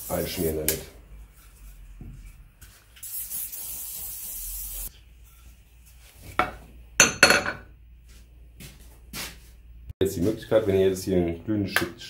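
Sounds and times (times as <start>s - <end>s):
aerosol spray hiss: 3.0s - 4.9s.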